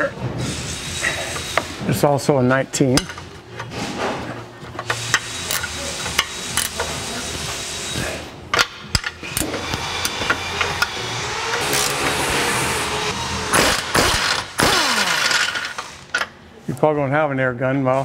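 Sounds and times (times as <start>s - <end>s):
pneumatic impact wrench: 4.8s - 8.2s, 8.9s - 16.3s.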